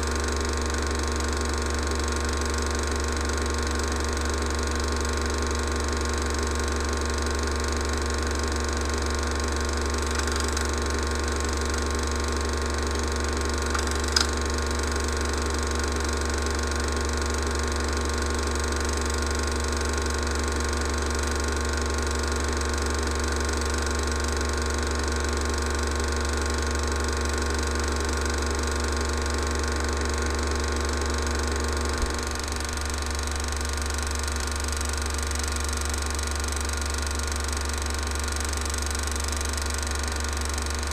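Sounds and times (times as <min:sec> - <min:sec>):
film projector whirring: 0:00.0 - 0:40.9
sharp click: 0:10.0 - 0:10.8, 0:13.7 - 0:14.4.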